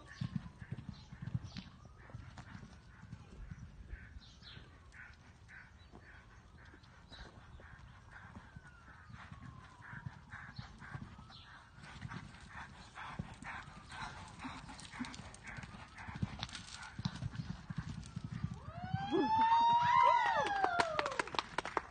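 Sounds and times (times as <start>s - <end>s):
hooves cantering on sand: 0.0s - 21.9s
loud long call: 18.6s - 21.4s.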